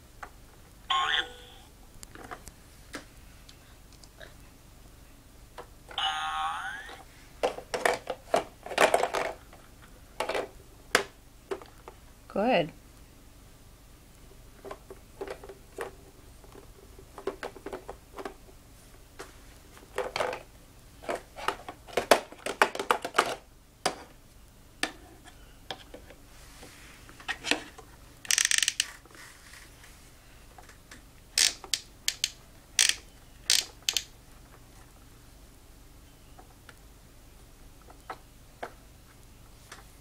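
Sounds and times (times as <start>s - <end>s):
plastic rattling: 7.4s - 9.4s
plastic parts clicking and knocking: 7.4s - 9.6s, 10.2s - 11.8s, 14.6s - 18.4s, 19.9s - 24.1s, 27.3s - 29.0s, 30.6s - 34.1s.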